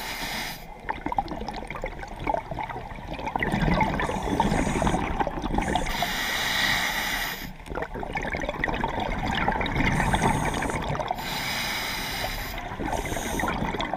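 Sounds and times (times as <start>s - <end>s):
regulator inhale hiss: 0.0s - 0.7s, 4.2s - 7.6s, 10.0s - 13.6s
exhaled air bubbling: 0.0s - 13.9s.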